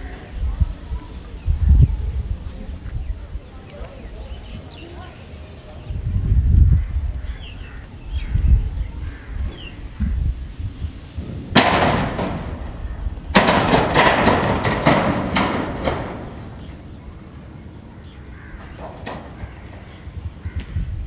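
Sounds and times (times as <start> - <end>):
metal sheet roof rattling: 10.7 - 21.0
bang on metal roof: 11.2 - 17.2, 18.5 - 19.9.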